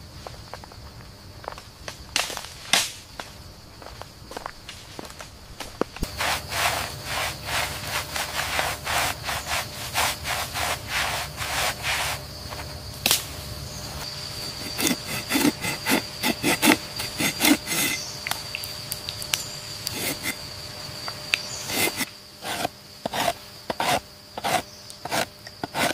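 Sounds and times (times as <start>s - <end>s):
cloth rubbing on bark: 6.0s - 12.7s, 13.9s - 18.0s, 20.0s - 20.4s
knife scraping bark: 6.0s - 18.1s, 19.8s - 20.4s, 21.5s - 25.9s.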